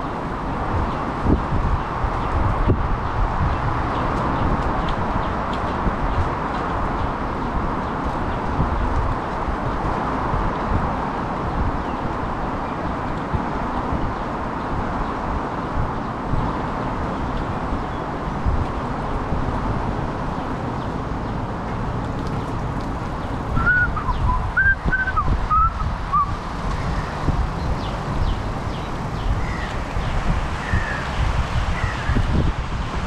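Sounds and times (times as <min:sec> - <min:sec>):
bicycle tyres rolling on asphalt: 0:00.0 - 0:33.0
wind buffeting microphone: 0:00.0 - 0:33.0
high whistled chirps: 0:23.6 - 0:26.3.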